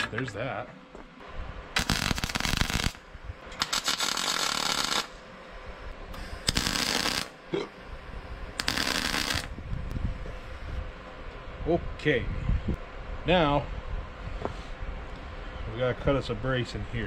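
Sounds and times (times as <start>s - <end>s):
arc welder crackling: 1.7s - 10.6s.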